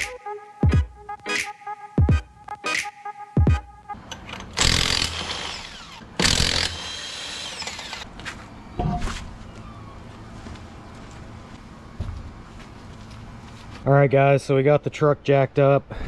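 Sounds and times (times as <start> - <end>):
impact wrench zipping lug nuts: 4.1 - 8.0.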